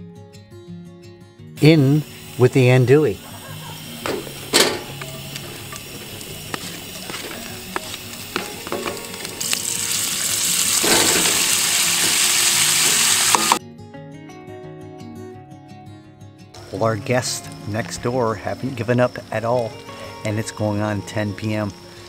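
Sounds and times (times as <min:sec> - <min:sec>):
soft music: 0:00.0 - 0:22.0
sausage sizzling in skillet: 0:01.6 - 0:13.6, 0:16.6 - 0:22.0
sausage pieces clicking into skillet: 0:04.0 - 0:10.0, 0:10.6 - 0:13.6.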